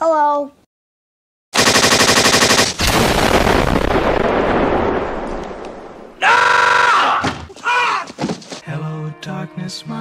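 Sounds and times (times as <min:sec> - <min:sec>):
gunfire burst: 0:01.6 - 0:05.4
loud explosion rumble: 0:02.8 - 0:06.2
man screaming: 0:06.2 - 0:08.2.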